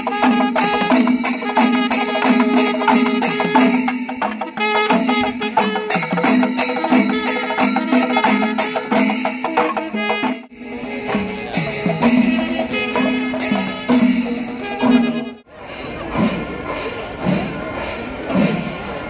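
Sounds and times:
clashing hand cymbals: 0.0 - 19.0
drums: 0.0 - 19.0.

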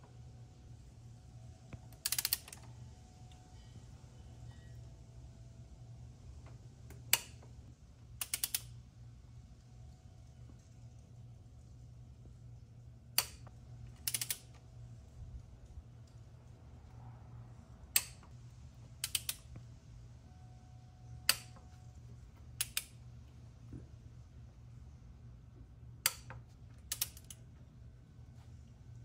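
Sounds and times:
light ratchet clicks: 1.7 - 4.0, 6.4 - 8.8, 13.1 - 14.7, 17.9 - 19.6, 21.2 - 21.8, 22.4 - 23.0, 26.0 - 27.5
torque wrench clicks: 1.9 - 2.7, 8.2 - 8.7, 13.2 - 14.6, 19.0 - 19.6, 21.2 - 21.6, 22.6 - 23.0, 26.0 - 27.4.

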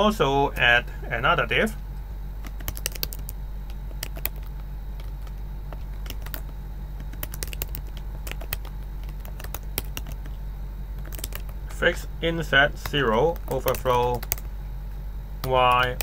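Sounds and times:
steady low hum: 0.0 - 16.0
keyboard typing clicks: 2.4 - 10.3, 11.0 - 11.5, 12.8 - 14.5, 15.4 - 16.0.

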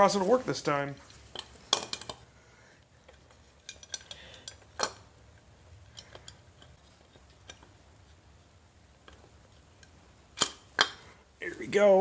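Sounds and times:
light metallic clicks and clinks: 3.0 - 5.1.

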